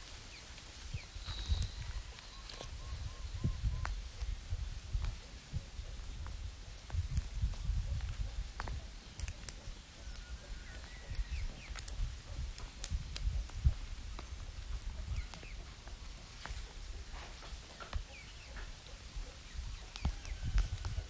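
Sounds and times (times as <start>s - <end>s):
eggshell clicks and crackles: 6.2s - 15.9s, 19.7s - 21.0s.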